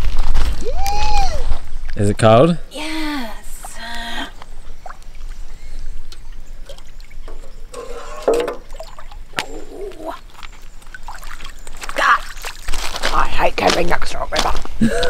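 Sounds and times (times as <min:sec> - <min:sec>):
can filling with river water: 0:06.0 - 0:13.5.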